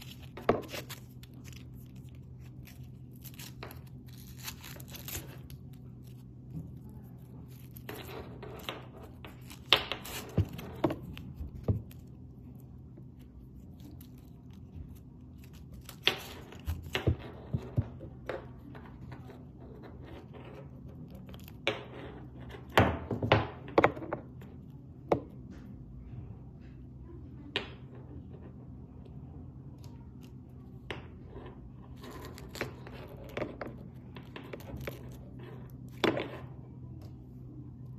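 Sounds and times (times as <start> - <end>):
tape rustling: 0.0 - 12.6, 13.2 - 17.2
steady low hum: 0.0 - 37.9.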